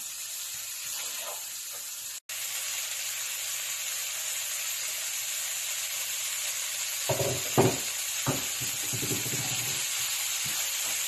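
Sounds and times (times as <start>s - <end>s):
vegetables sizzling in a frying pan: 0.0s - 11.0s
wooden spatula scraping a pan: 8.4s - 11.0s.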